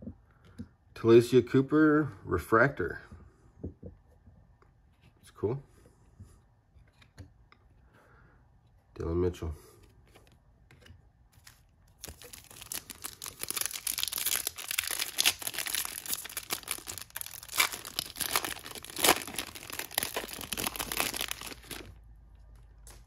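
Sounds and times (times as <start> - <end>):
foil wrapper crinkling and tearing: 11.4 - 22.0.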